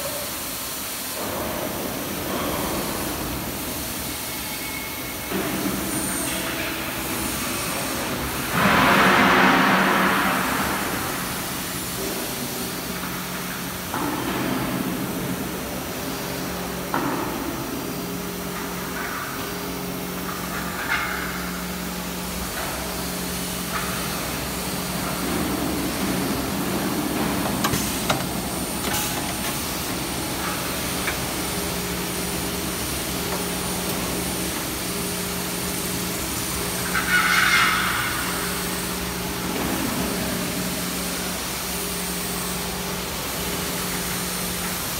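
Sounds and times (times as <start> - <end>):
hiss of cutting and coolant spray: 0.0 - 44.9
milling machine hum: 21.6 - 37.0.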